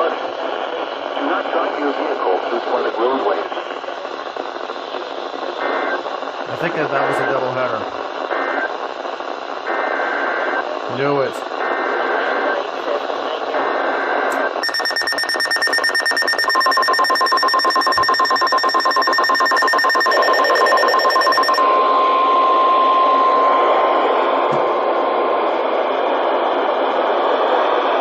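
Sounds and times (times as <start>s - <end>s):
radio hiss: 0.0s - 8.6s, 9.7s - 21.3s
steady warning tone: 14.3s - 24.4s
warbling data tones: 14.6s - 21.6s
shrill alarm beeping: 14.6s - 23.5s.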